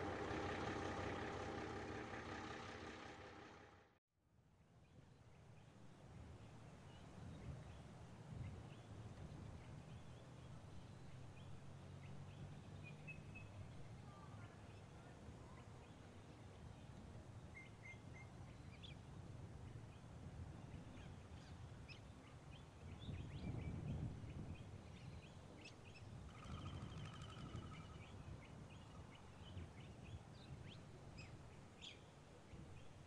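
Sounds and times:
low background rumble: 0.0 - 4.0
small birds chirping: 20.7 - 33.0.

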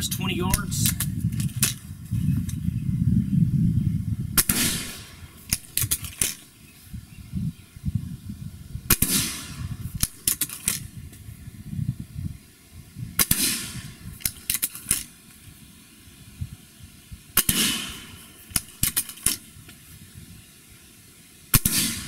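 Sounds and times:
air rifle shots: 0.0 - 1.8, 4.3 - 6.5, 8.9 - 10.9, 13.2 - 15.2, 17.4 - 19.6, 21.5 - 22.0.

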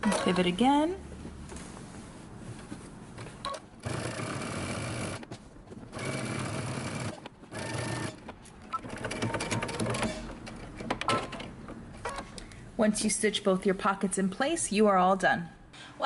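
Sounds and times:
sewing machine stitching: 3.4 - 5.2, 5.9 - 10.4.

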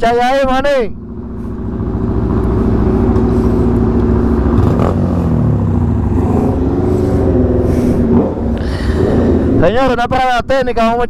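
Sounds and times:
motorcycle engines running: 0.0 - 11.0.

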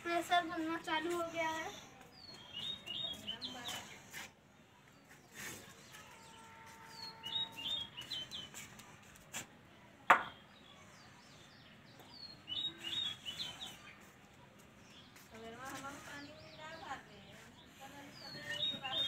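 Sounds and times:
small birds chirping: 0.0 - 9.5, 10.2 - 19.0
brick set down on bricks: 10.1 - 10.3.

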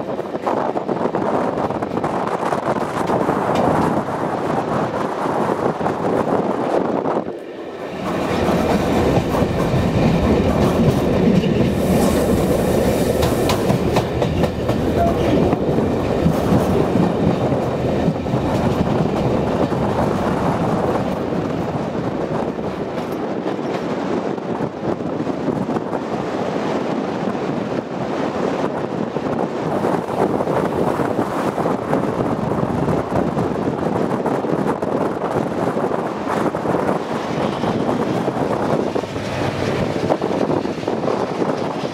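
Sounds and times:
train rolling rumble: 0.0 - 41.9
wheels clickety-clack: 8.0 - 24.1.

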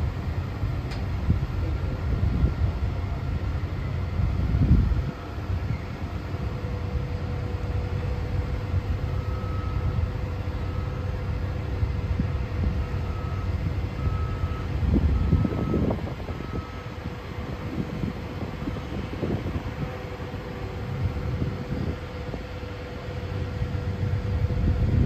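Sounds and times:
construction machinery rumbling: 0.0 - 25.0
warning alarm beeping: 12.7 - 17.1.

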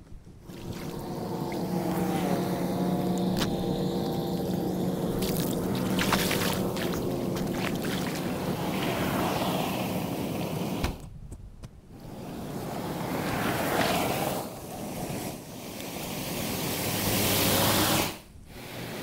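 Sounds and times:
low motor-like hum: 0.2 - 9.3
short water splashes: 0.5 - 1.7, 5.2 - 9.0
floodwater running and splashing: 0.5 - 9.5.

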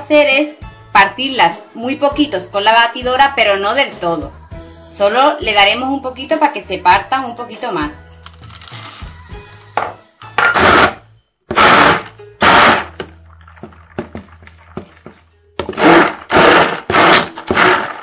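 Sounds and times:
stick blender bursts: 10.5 - 13.0, 15.6 - 18.0.

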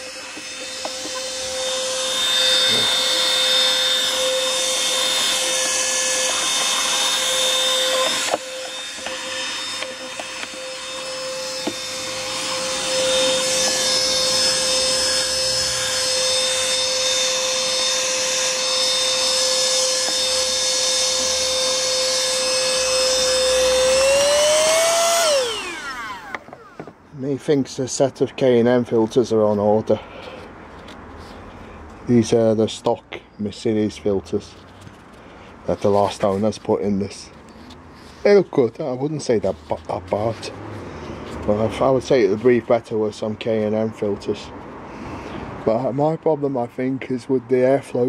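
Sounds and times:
vacuum cleaner running: 0.0 - 27.0.

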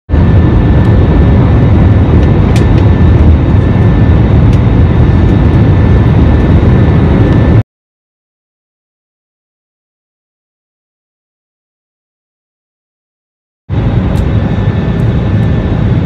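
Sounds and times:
airliner cabin engine rush: 0.1 - 7.6, 13.7 - 16.0.

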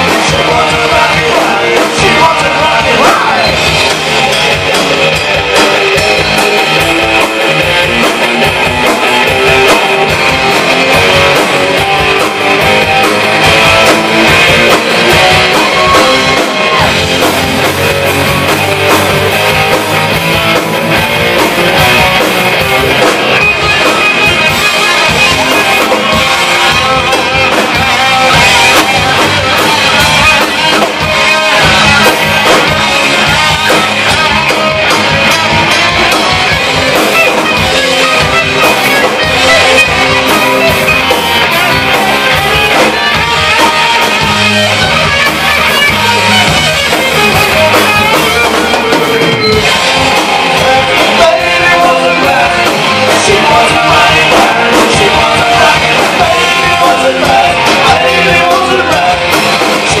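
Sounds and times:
man singing: 0.0 - 4.9, 48.1 - 60.0
bass guitar: 0.0 - 60.0
distorted electric guitars: 0.0 - 60.0
drum kit: 0.0 - 60.0.

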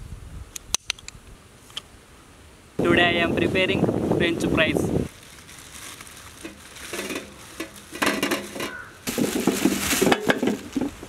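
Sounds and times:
plastic bag crinkling: 5.1 - 11.0
potatoes rolling onto metal tray: 6.4 - 11.0.

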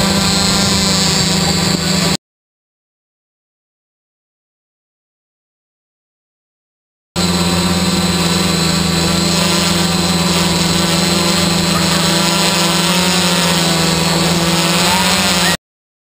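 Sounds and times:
drone propellers humming: 0.0 - 2.2, 7.2 - 15.6.

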